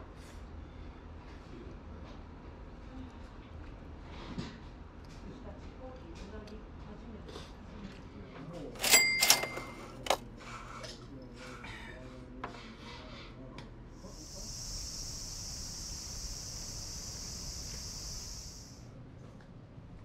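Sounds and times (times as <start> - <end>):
faint murmur: 5.2 - 19.5
high-pitched insect drone: 14.1 - 18.8.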